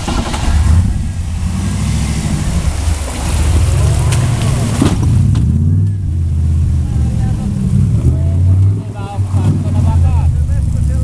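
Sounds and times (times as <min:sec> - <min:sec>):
water sloshing and splashing: 0:00.0 - 0:10.9
jeep engine under load: 0:00.0 - 0:11.0.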